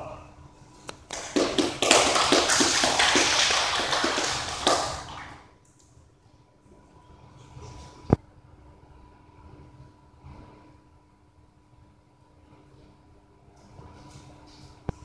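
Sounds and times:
person clapping close by: 0.9s - 5.4s
audience applause: 1.1s - 5.5s.

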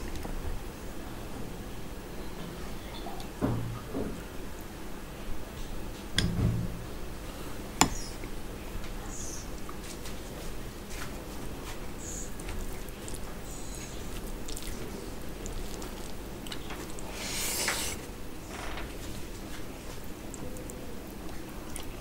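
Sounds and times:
fingers squishing wet rice: 11.6s - 18.1s.

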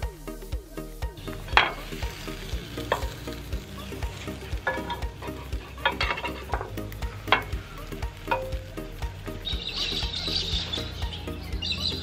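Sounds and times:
background music with steady beat: 0.0s - 12.0s
pancakes sizzling in a frying pan: 0.0s - 12.0s
utensil scraping a pan: 1.3s - 8.5s.

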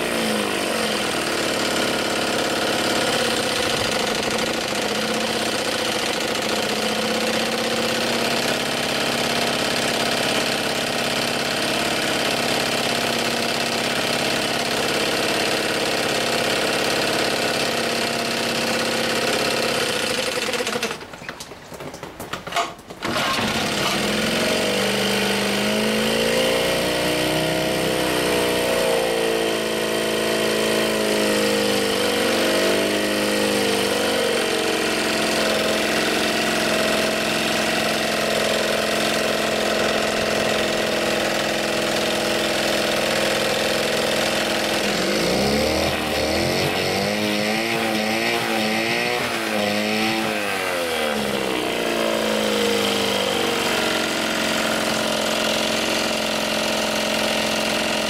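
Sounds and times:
outboard motor revving: 0.0s - 21.1s, 23.0s - 58.0s.

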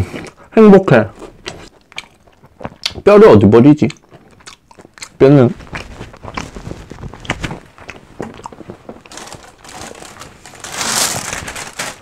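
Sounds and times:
plastic bag rustling: 5.5s - 12.0s.

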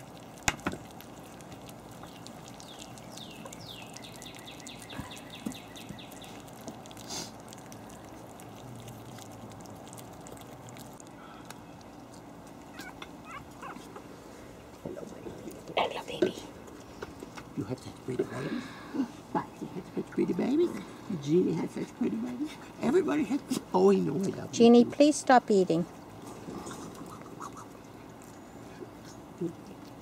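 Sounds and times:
puppies smacking while eating: 0.0s - 18.5s, 25.9s - 30.0s.

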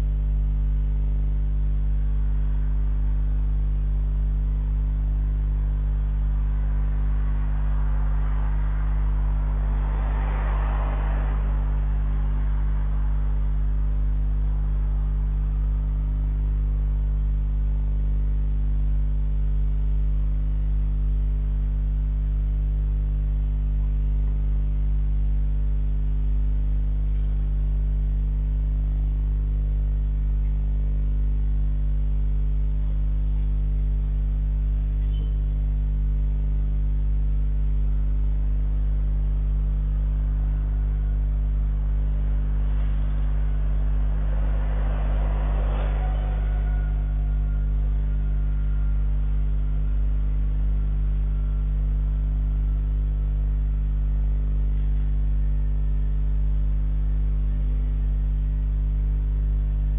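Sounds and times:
electrical mains hum: 0.0s - 59.9s
passing vehicle: 6.1s - 16.0s, 40.3s - 51.6s.

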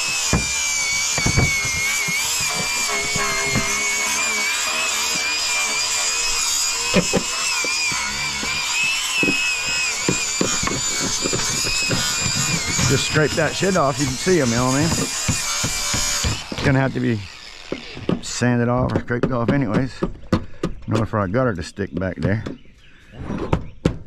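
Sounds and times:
power tool motor whine: 0.0s - 18.2s.

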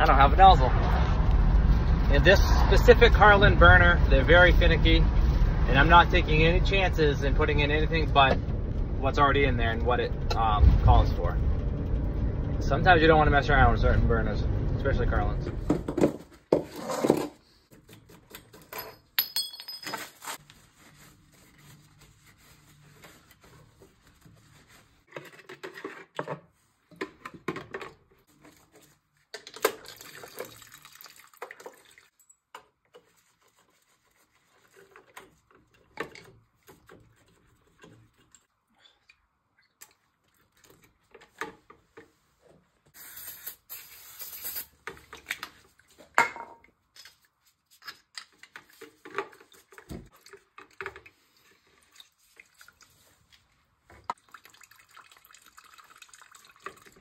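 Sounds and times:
rag wiping: 20.4s - 25.1s
oil trickling and dripping: 29.4s - 41.3s, 48.4s - 57.0s.

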